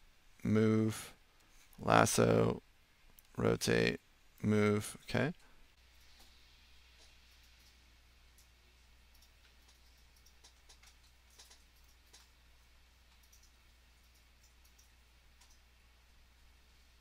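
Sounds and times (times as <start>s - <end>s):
low steady hum: 0.0s - 17.0s
mouse and keyboard clicks: 9.1s - 12.3s.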